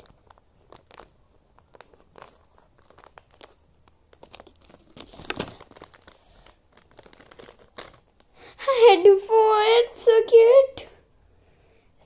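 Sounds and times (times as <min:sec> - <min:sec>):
plastic packet crinkling: 0:00.0 - 0:08.3
plastic tearing: 0:00.0 - 0:08.3.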